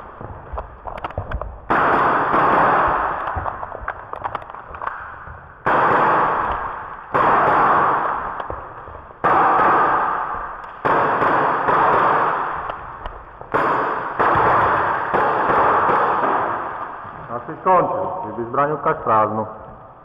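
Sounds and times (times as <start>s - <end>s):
airsoft pistol shots: 1.7s - 5.0s, 5.6s - 8.6s, 9.2s - 17.0s.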